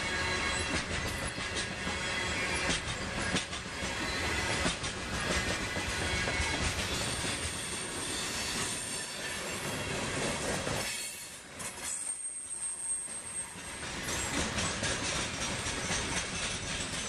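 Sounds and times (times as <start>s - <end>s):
train wheels rumbling on rails: 0.0s - 17.0s
high wheel squeal: 5.3s - 9.9s.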